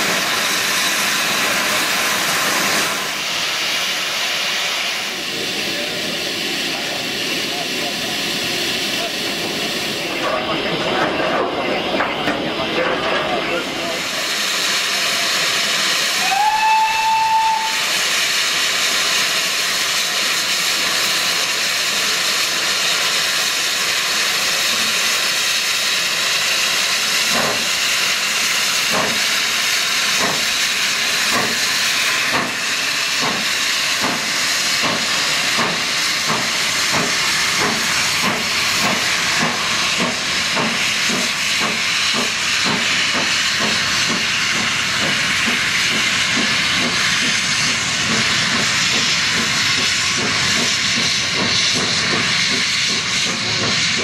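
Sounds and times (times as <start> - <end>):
steam hissing: 0.0 - 54.0
steam locomotive exhaust beats: 0.0 - 54.0
steam locomotive whistle: 16.1 - 18.1.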